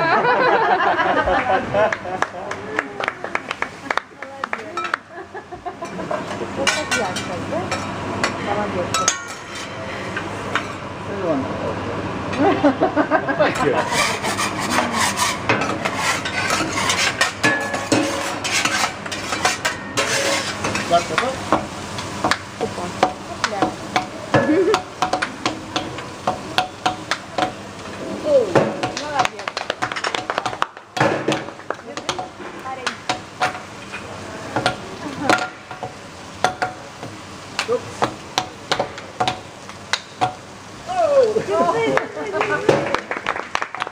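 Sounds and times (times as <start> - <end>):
meat sizzling on griddle: 3.5 - 10.9, 12.4 - 42.9
metal spatulas scraping griddle: 5.8 - 10.8, 13.4 - 21.4
metal shakers tapping on griddle: 15.4 - 27.6, 28.5 - 33.7, 34.6 - 40.4.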